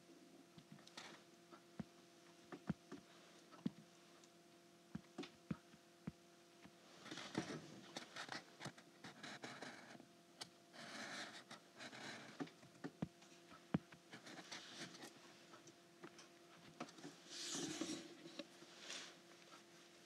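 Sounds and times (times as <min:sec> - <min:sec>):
low electrical hum: 0:00.0 - 0:20.0
stylus scratching on screen: 0:07.0 - 0:10.0.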